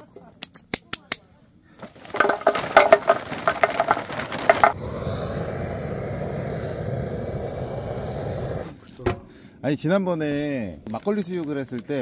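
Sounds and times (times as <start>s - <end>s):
charcoal clattering into metal grill: 1.8s - 4.8s
butane torch hissing: 4.8s - 8.8s.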